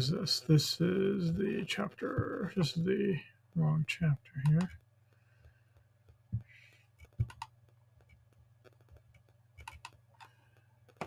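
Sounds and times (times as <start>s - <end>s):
low steady hum: 0.0s - 11.0s
computer mouse clicks: 7.0s - 11.0s.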